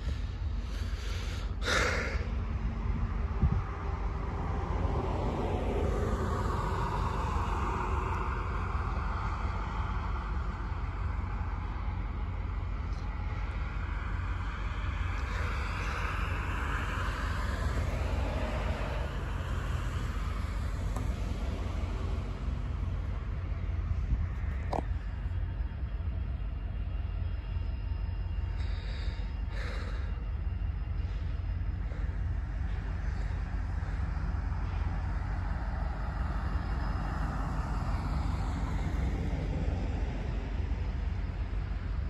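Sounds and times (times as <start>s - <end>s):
steady low rumble: 0.0s - 42.0s
vehicle passing: 0.7s - 24.8s.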